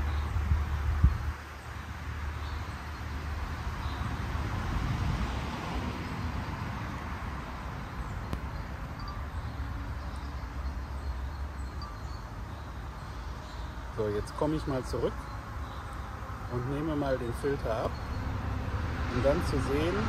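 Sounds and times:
wind buffeting microphone: 0.0 - 13.4.

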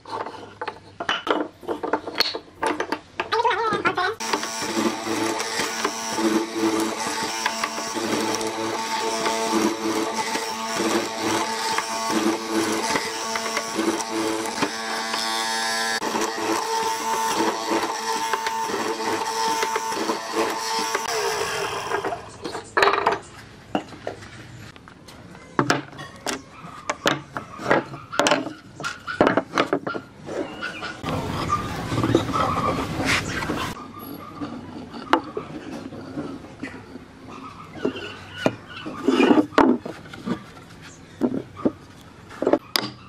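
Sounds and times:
mortiser motor humming: 4.2 - 22.6, 31.0 - 33.8.

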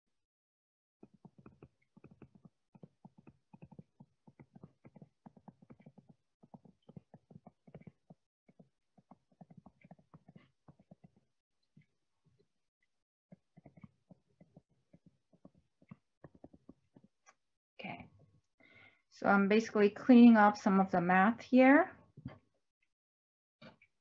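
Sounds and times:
stylus tapping on touchscreen: 1.0 - 11.2, 15.4 - 17.1.

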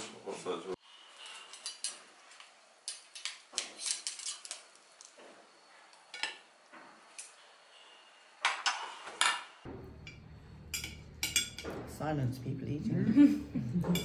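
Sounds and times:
cutlery clinking on plates: 10.0 - 11.9.

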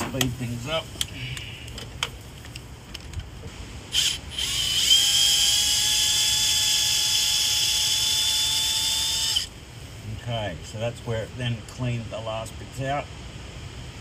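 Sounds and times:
cordless drill whining: 3.9 - 9.5.

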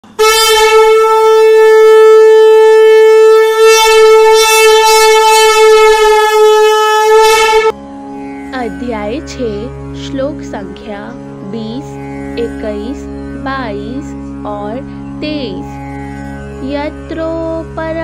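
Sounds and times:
conch shell blown: 0.0 - 8.6.

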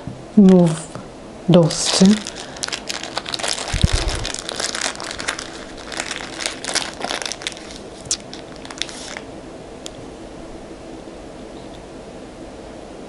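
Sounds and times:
plastic bag crinkling: 1.7 - 9.3.

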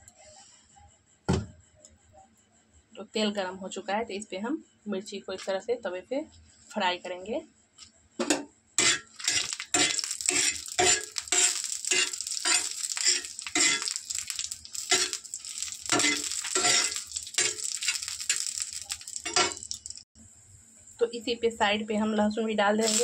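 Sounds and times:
metal spatula scraping griddle: 8.8 - 19.8
chillies sizzling in hot oil: 8.8 - 20.0, 22.8 - 23.0.

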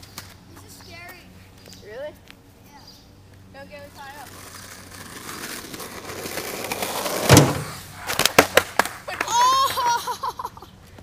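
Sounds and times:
skateboard wheels rolling on asphalt: 0.0 - 11.0
board clacking on road: 4.2 - 9.4
skater crashing: 4.4 - 10.1
person yelling: 9.1 - 10.0.

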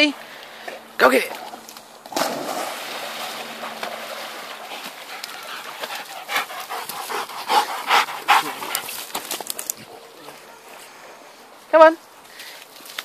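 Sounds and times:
dog panting: 4.7 - 9.1.

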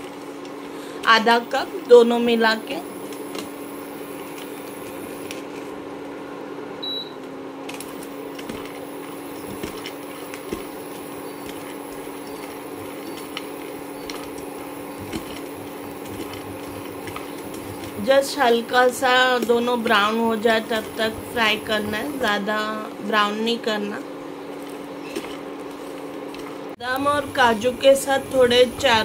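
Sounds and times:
low hum: 1.2 - 24.8
nuts sizzling in a pan: 7.9 - 22.2.

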